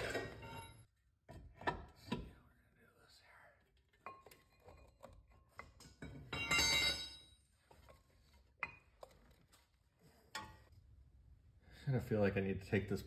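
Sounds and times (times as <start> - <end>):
metal tools clinking on steel: 5.8 - 7.4.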